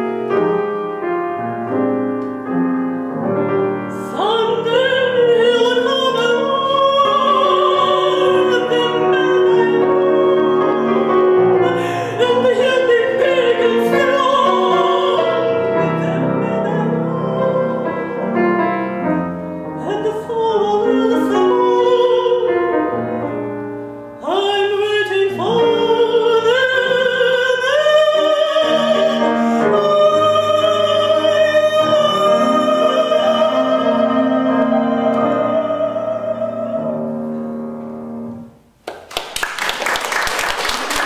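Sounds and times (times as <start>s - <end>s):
grand piano accompaniment: 0.0s - 41.0s
woman singing operatically: 3.9s - 18.6s, 19.8s - 22.7s, 24.2s - 37.2s
audience applause: 38.9s - 41.0s.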